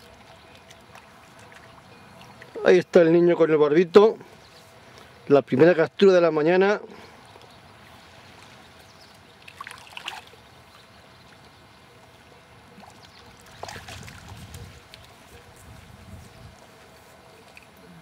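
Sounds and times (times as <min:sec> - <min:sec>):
fish splashing in water: 0:09.3 - 0:10.9, 0:12.7 - 0:15.2.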